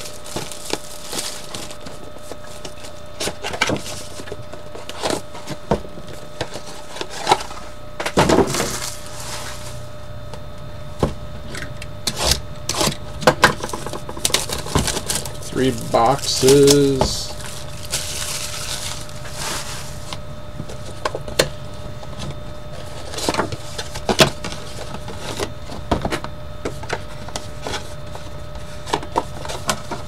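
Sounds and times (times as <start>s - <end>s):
plastic wrap crinkling: 0.0s - 4.4s, 13.7s - 21.0s
cardboard boxes being handled: 0.0s - 9.9s, 13.6s - 21.5s.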